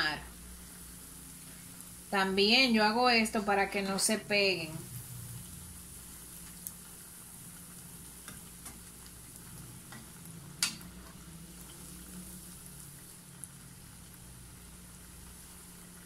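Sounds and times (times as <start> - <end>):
food deep-frying in hot oil: 0.0 - 16.0
spoon tapping pan: 8.2 - 8.9, 9.8 - 11.2.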